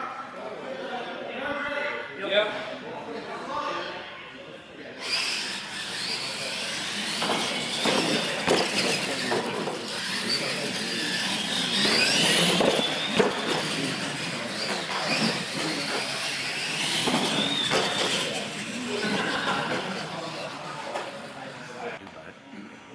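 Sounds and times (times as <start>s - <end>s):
electric motors whining: 5.0s - 22.0s.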